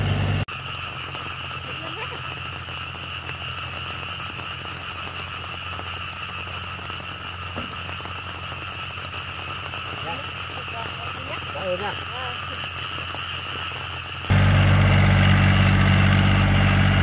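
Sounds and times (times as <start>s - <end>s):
diesel tractor engine idling: 0.0s - 0.6s, 14.2s - 17.0s
frogs croaking in chorus: 0.7s - 14.1s.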